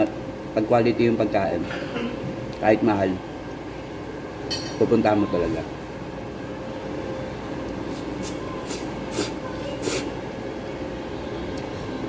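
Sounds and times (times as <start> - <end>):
low room hum: 0.0 - 12.0
noodles being slurped: 7.9 - 10.1.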